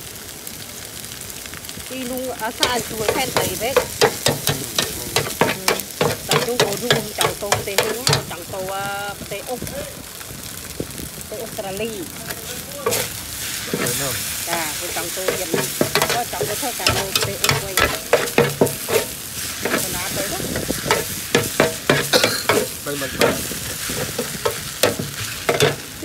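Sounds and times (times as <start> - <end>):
food sizzling in oil: 0.0 - 26.0
metal spatula scraping wok: 2.6 - 8.7, 12.8 - 26.0.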